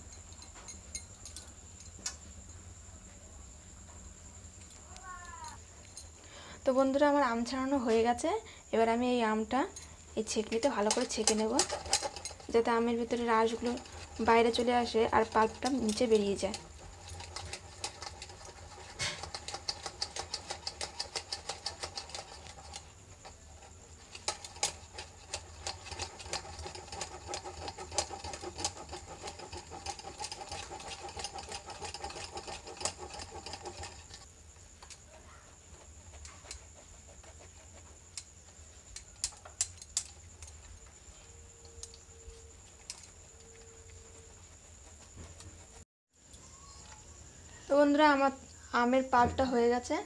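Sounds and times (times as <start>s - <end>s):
faint steady hum: 0.0s - 27.8s.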